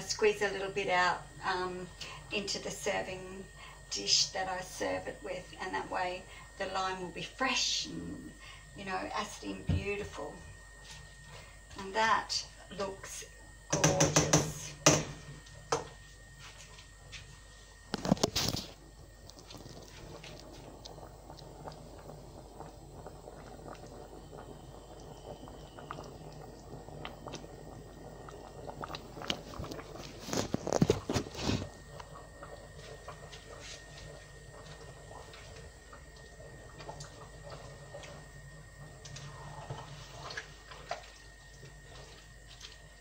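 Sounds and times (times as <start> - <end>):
steady low hum: 0.0 - 43.0
curry bubbling in pot: 10.5 - 43.0.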